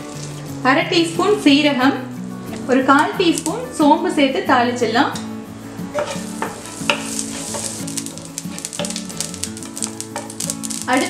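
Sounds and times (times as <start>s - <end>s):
seeds sizzling in oil: 0.0s - 4.3s, 5.2s - 11.0s
seeds popping crackles: 2.5s - 3.8s, 6.0s - 11.0s.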